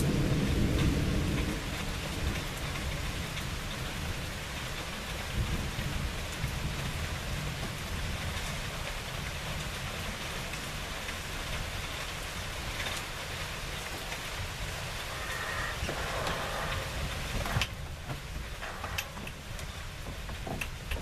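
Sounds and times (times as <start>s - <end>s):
low thunder rumble: 0.0s - 10.9s, 12.4s - 21.0s
steady rain hiss: 0.0s - 21.0s.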